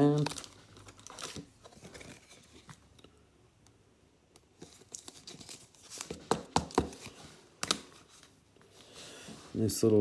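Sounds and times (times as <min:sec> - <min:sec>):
plastic rustling: 0:00.0 - 0:03.1.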